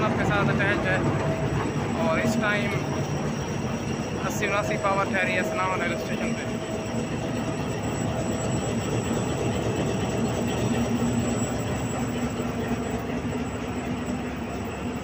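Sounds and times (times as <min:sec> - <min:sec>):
diesel locomotive idling: 0:00.0 - 0:15.0.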